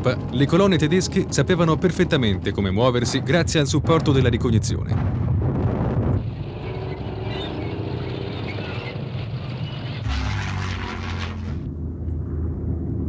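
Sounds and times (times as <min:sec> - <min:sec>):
mechanical rumble: 0:00.0 - 0:13.0
propeller aircraft flying overhead: 0:06.2 - 0:13.0.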